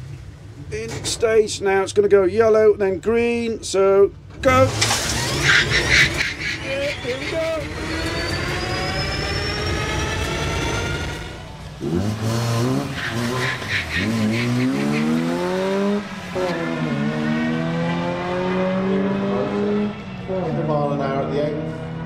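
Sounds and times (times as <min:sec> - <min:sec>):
car engine rising through gears: 0:04.2 - 0:22.0
electric motor whining: 0:04.7 - 0:12.8.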